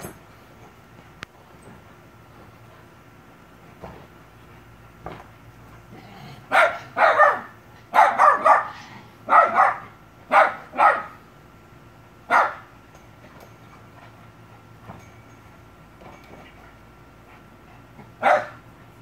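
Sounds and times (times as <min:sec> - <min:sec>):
dog barking: 0:06.5 - 0:11.2, 0:12.3 - 0:12.7, 0:18.2 - 0:18.6.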